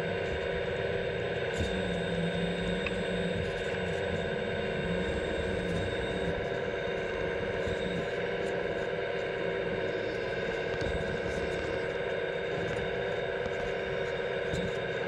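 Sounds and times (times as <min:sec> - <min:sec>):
hydraulic pump droning whine: 0:00.0 - 0:15.0.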